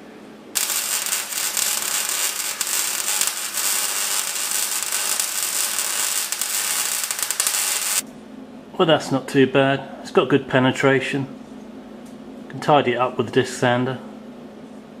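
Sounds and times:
arc welding crackling hiss: 0.6 - 8.0.

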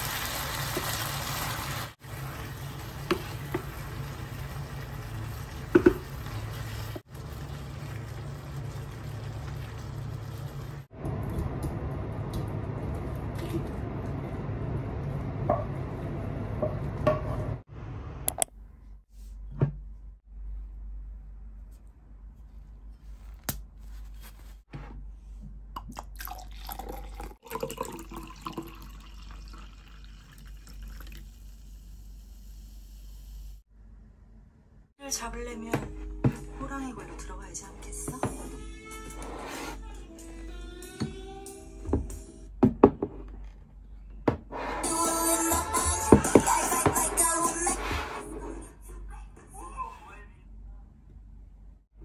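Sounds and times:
shrimp sizzling in frying pan: 0.0 - 9.4
wooden spoon knocking on pan: 5.7 - 6.1
drink gurgling and fizzing: 25.8 - 31.7.

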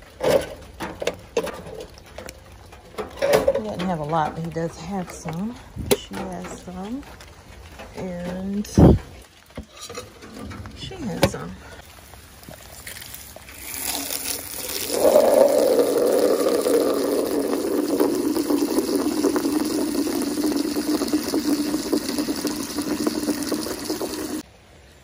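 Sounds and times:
water spraying into plastic bucket: 13.0 - 24.4.

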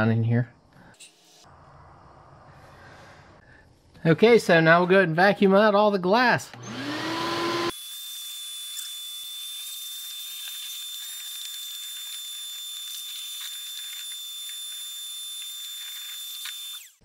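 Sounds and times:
vacuum cleaner whining: 6.5 - 9.5, 10.1 - 17.0.

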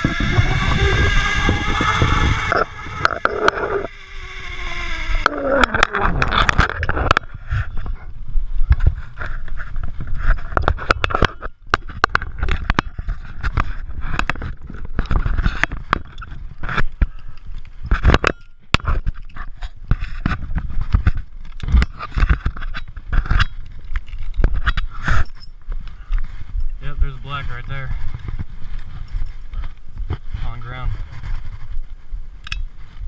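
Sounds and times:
low rumble: 0.0 - 4.0
webbing rubbing against camera: 0.0 - 8.1.

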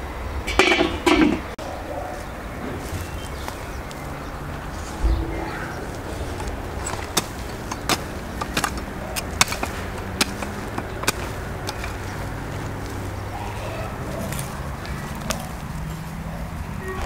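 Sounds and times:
hoe chopping stony soil: 5.9 - 16.0.

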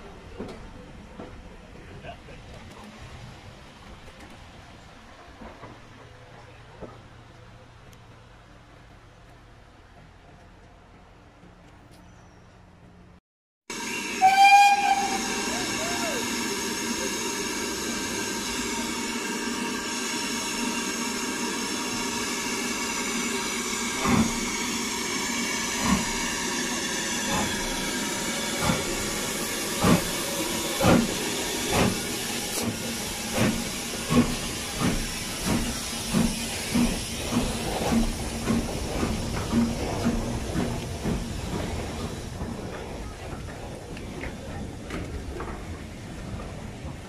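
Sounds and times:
steam hissing: 13.7 - 44.6
steam locomotive exhaust chuffs: 13.7 - 47.0.

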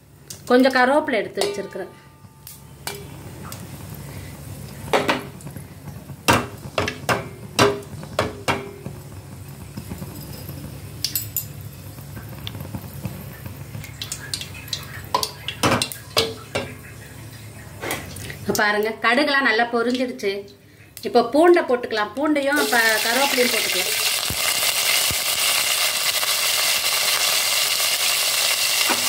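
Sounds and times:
mustard seeds popping in oil: 22.6 - 29.0.

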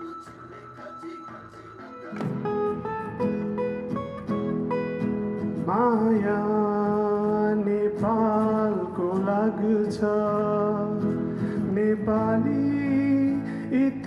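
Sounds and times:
sliding melody line: 0.0 - 7.8
acoustic guitars strumming: 0.0 - 14.0.

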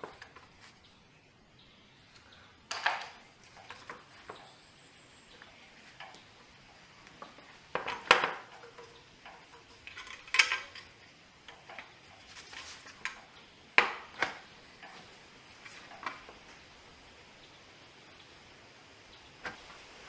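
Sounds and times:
metal tools clinking: 7.7 - 13.2.

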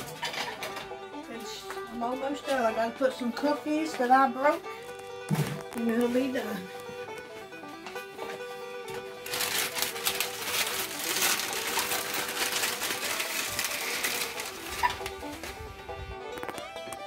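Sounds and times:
soft banjo music: 0.0 - 17.0
cookies crunching and crackling: 7.9 - 17.0.

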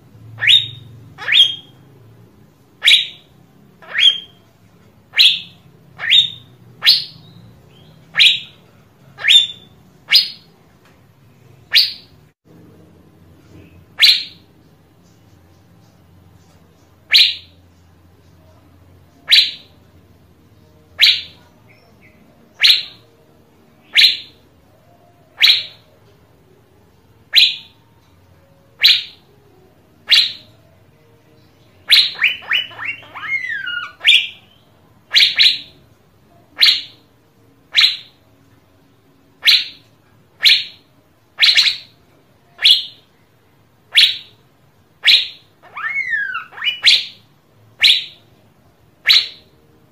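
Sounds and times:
bird rapid notes and warble: 0.3 - 1.8, 2.8 - 10.5, 13.5 - 19.8, 31.7 - 35.8.

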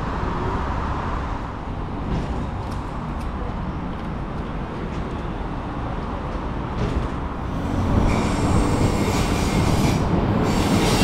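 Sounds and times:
train running on rails: 0.0 - 11.0
high-pitched wheel squeal: 7.6 - 11.0.

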